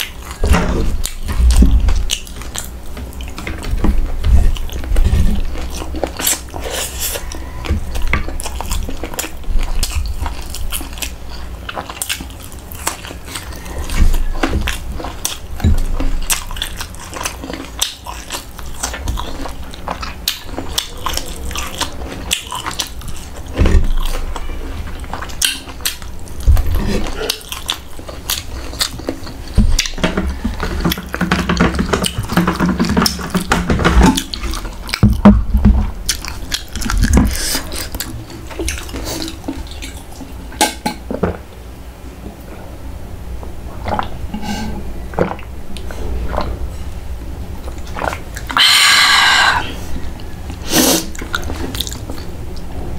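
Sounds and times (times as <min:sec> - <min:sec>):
chewing and wet mouth smacks: 0:04.5 - 0:31.2, 0:36.0 - 0:40.3, 0:47.6 - 0:48.7, 0:50.1 - 0:52.7.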